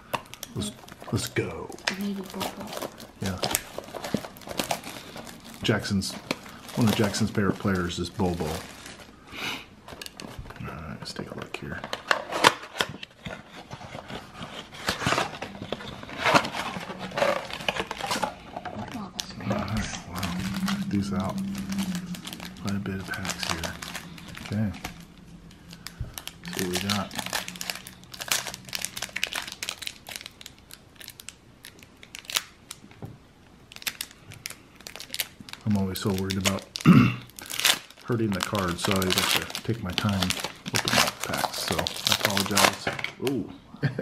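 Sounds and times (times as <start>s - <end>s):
card pack wrapper crinkling: 0.0s - 9.2s, 9.9s - 33.0s, 33.7s - 43.2s
cardboard scraping and rustling: 11.8s - 18.9s.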